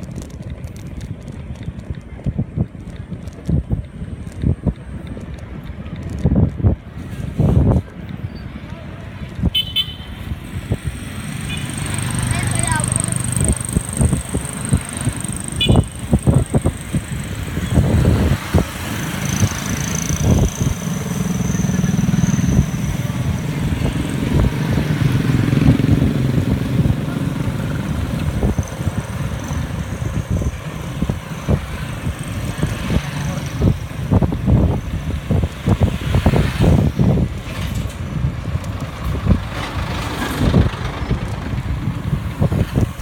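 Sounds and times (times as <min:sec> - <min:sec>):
motorcycles and truck passing: 0:00.0 - 0:43.0
wind buffeting microphone: 0:00.0 - 0:43.0.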